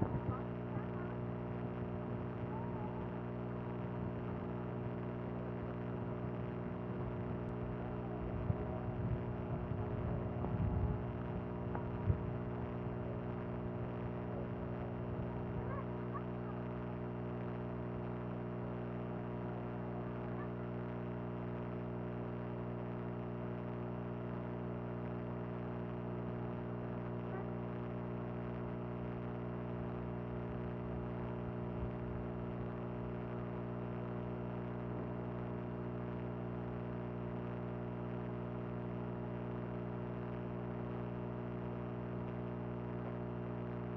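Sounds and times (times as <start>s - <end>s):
steady droning hum: 0.0s - 43.9s.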